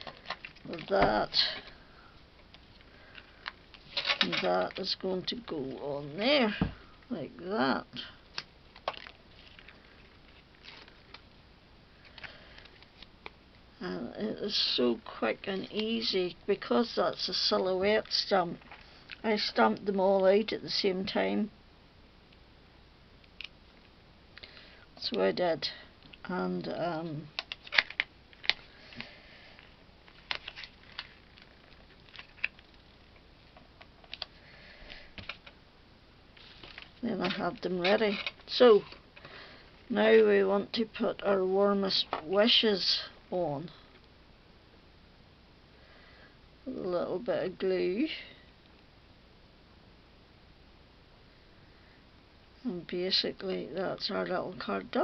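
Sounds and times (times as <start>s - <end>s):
faint paper rustle: 36.4s - 39.4s.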